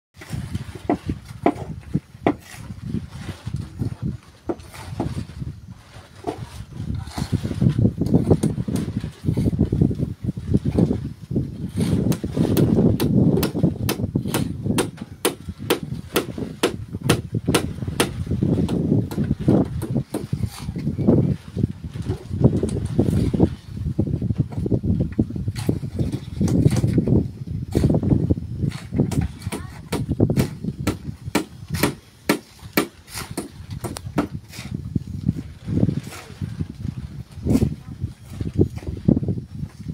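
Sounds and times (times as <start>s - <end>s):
hand tool striking: 28.7s - 34.8s.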